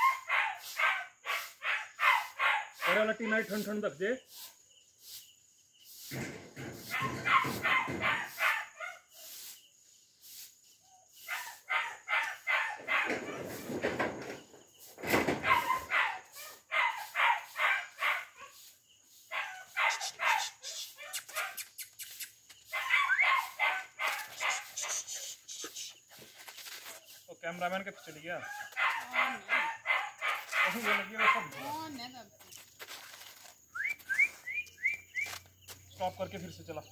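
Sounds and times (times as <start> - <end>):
puppy yapping and barking: 22.7 - 25.1.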